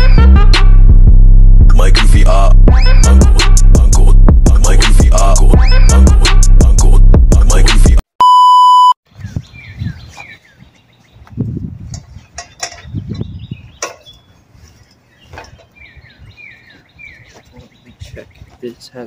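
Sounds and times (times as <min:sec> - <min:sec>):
low rumbles: 0:00.0 - 0:07.6
music: 0:00.0 - 0:08.0
electronic beep: 0:08.2 - 0:09.0
bird chirping: 0:09.1 - 0:19.0.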